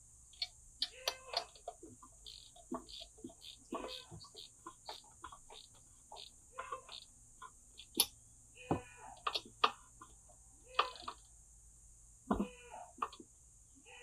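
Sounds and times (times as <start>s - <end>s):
hand wrench clicking on bolts: 0.4s - 4.2s.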